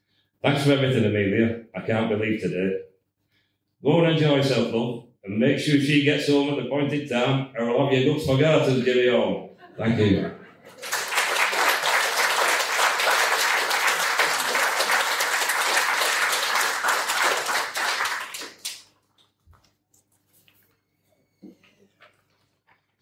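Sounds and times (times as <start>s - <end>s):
audience applauding: 10.6s - 19.0s.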